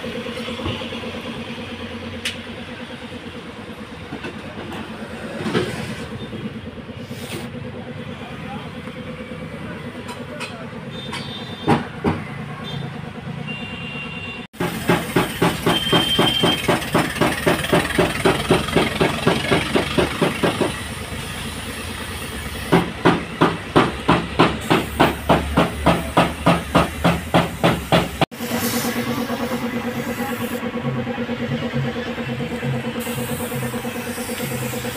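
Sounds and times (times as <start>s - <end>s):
rhythmic machine pulsing: 22.2s - 34.9s
spray gun hissing: 27.3s - 30.6s, 33.0s - 34.9s.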